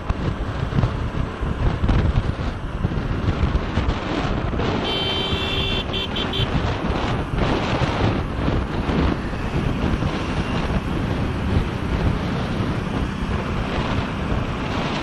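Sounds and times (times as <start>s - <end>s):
moving vehicle rush: 0.0s - 15.0s
wind buffeting microphone: 0.0s - 15.0s
vehicle horn honking: 4.8s - 6.7s.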